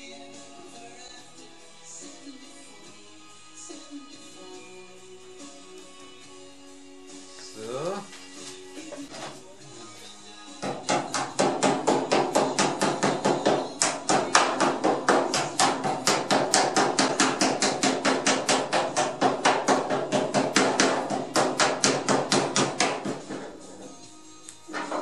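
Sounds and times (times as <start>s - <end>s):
hammer knocking on sheet steel: 10.6s - 23.7s.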